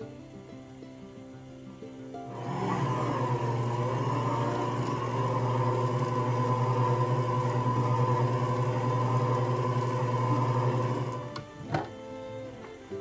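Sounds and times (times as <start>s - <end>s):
stand mixer whisking batter: 2.3s - 11.3s.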